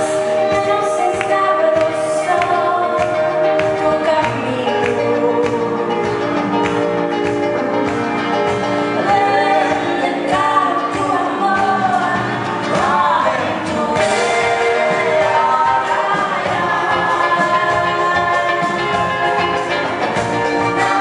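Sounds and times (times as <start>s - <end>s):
electric guitar: 0.0s - 21.0s
person singing: 8.9s - 21.0s.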